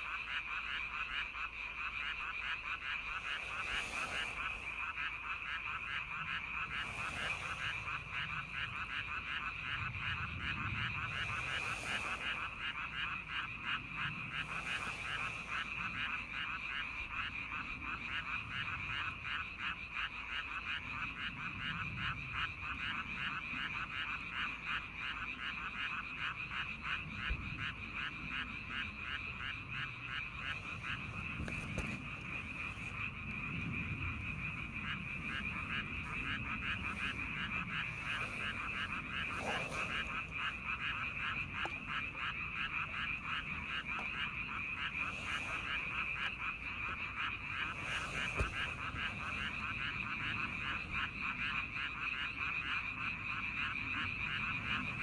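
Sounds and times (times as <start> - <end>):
frogs calling in a trill: 0.0 - 55.0.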